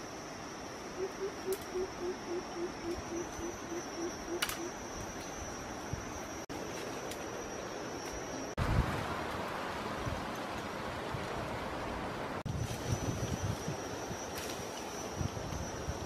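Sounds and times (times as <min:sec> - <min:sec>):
insects droning: 0:00.0 - 0:08.6, 0:12.4 - 0:16.0.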